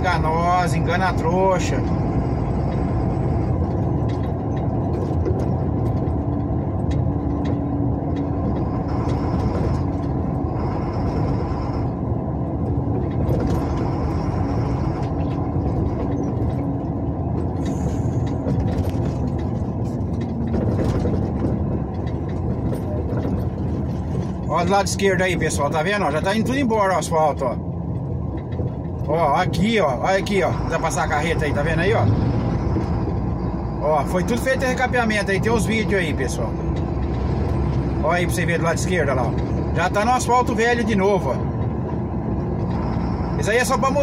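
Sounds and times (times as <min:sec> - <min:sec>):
diesel truck engine running: 0:00.0 - 0:44.0
road and tyre noise: 0:00.0 - 0:44.0
small clicks and rattles: 0:03.5 - 0:10.4, 0:12.9 - 0:24.5.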